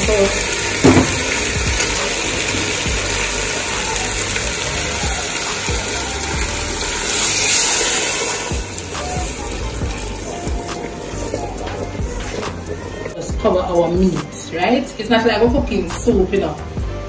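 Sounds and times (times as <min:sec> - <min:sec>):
water pouring into a pot: 0:00.0 - 0:13.1.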